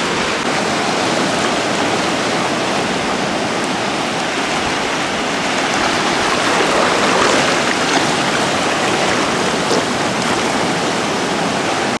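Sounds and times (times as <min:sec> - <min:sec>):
sea water splashing around rocks: 0:04.1 - 0:12.0.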